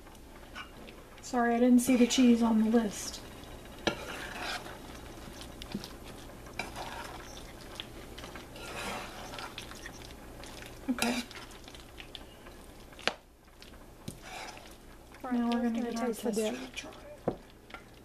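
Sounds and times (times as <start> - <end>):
utensil stirring thick dip: 3.8 - 12.2, 13.6 - 17.9.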